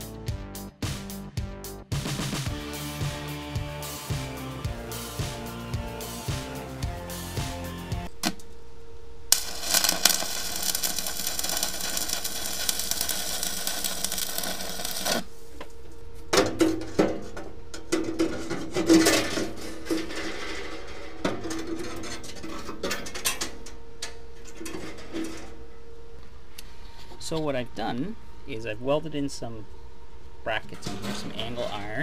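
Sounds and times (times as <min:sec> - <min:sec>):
arc welding crackling: 0:09.3 - 0:15.6
metal grates clanking and scraping: 0:16.4 - 0:23.6, 0:24.4 - 0:25.6, 0:30.7 - 0:32.0.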